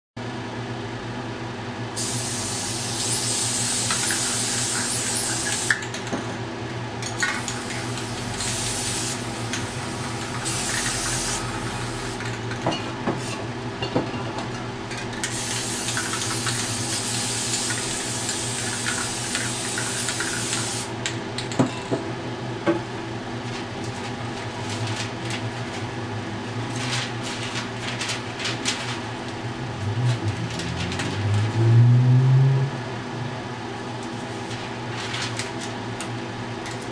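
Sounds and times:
spray paint can hissing: 2.0s - 5.8s, 7.4s - 12.2s, 15.3s - 20.9s.

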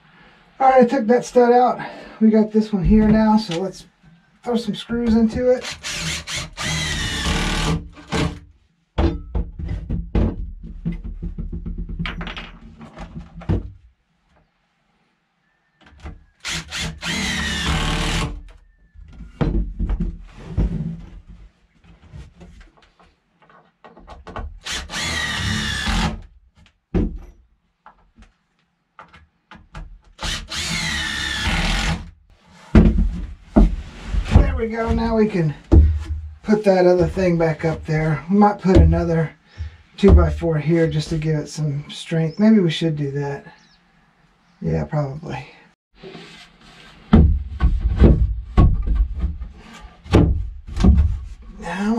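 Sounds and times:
impact driver driving screws: 5.6s - 8.4s.

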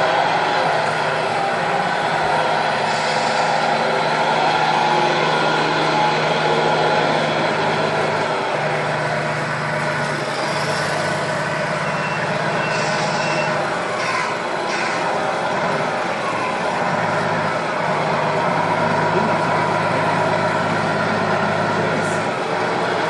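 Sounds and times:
diesel truck engine sound: 0.0s - 23.0s
high reversing beeps: 10.4s - 13.7s.

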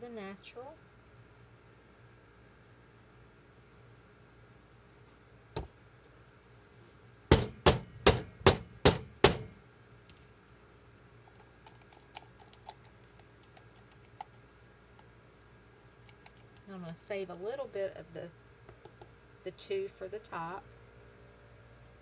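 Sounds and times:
loud sharp knocks: 7.3s - 9.5s.

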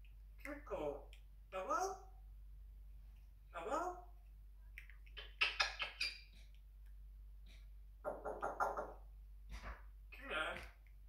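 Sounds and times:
parrot squawking: 5.2s - 6.4s, 8.0s - 9.0s.

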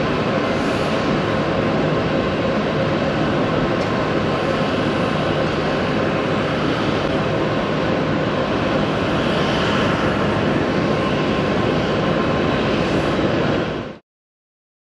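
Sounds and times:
jet airliner rumble: 0.0s - 14.0s.

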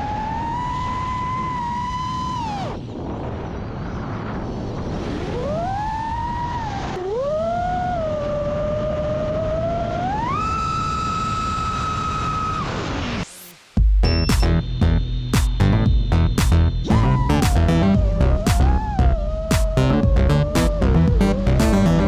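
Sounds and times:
propeller and wind rush: 0.0s - 13.3s
drone motors whining: 14.1s - 22.0s.

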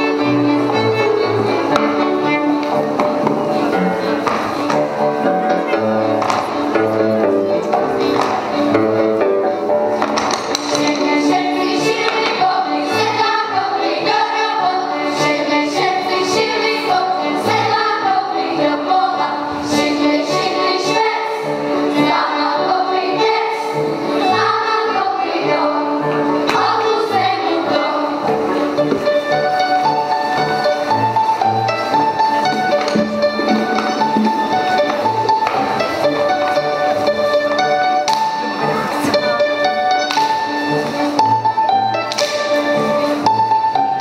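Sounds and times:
folk band with strings: 0.0s - 44.0s
children singing in chorus: 10.7s - 28.4s.

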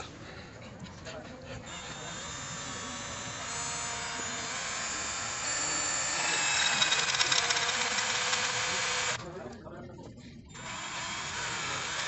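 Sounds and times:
drill boring through steel: 1.7s - 9.2s, 10.5s - 12.0s.

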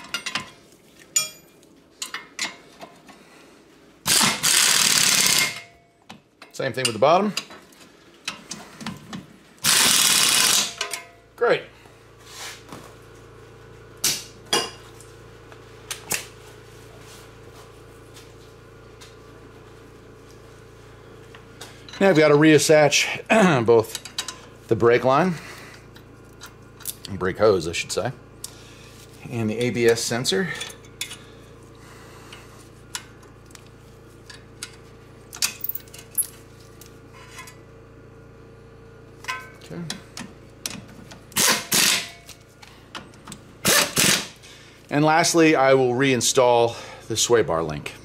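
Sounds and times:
metal tools clanking: 0.0s - 0.6s
steady low hum: 0.0s - 48.0s.

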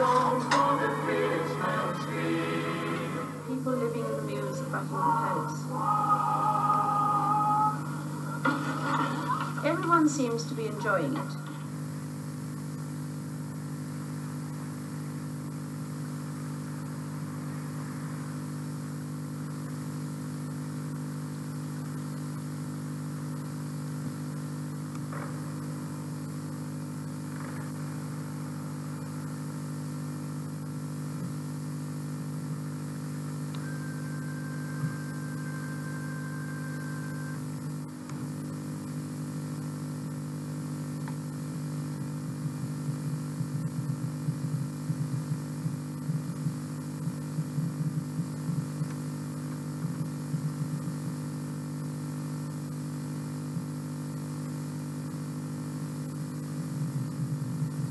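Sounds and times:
faint high tone: 0.0s - 8.5s, 33.6s - 37.6s
low electrical hum with hiss: 0.0s - 51.2s.

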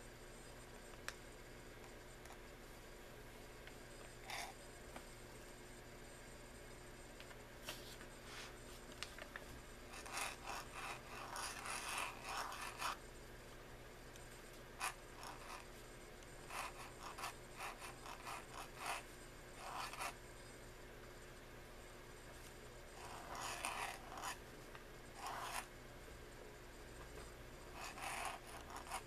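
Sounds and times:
pen nib scratching paper: 4.2s - 4.6s, 9.9s - 13.0s, 14.8s - 15.7s, 16.4s - 20.2s, 23.0s - 24.4s, 25.2s - 25.7s, 27.7s - 29.0s.

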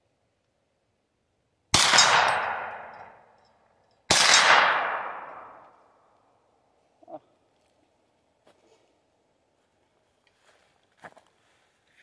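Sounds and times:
carbine gunshots with long echo: 1.7s - 3.3s, 4.1s - 6.1s.

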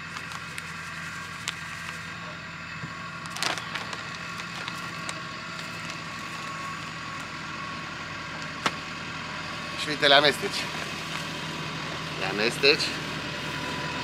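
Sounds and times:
low mechanical hum: 0.0s - 14.0s
plastic bag rustling and crinkling: 3.2s - 6.5s.

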